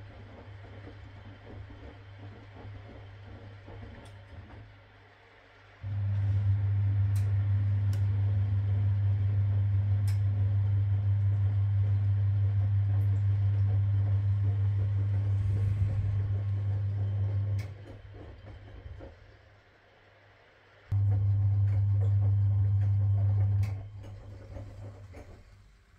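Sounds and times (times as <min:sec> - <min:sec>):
washing machine drum motor hum: 0:00.0 - 0:25.9.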